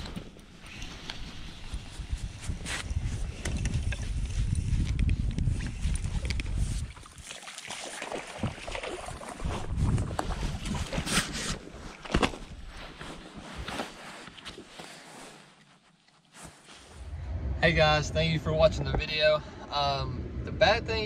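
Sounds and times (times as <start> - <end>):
fish splashing at water surface: 7.0 - 9.7
low rumble: 16.8 - 21.0.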